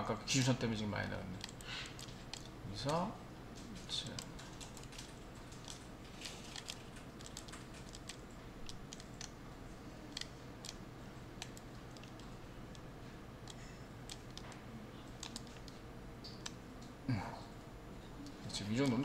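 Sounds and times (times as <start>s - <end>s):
low steady hum: 0.0s - 19.0s
mouse and keyboard clicks: 1.3s - 3.0s, 3.6s - 9.4s, 10.0s - 10.8s, 11.4s - 16.6s, 18.7s - 19.0s.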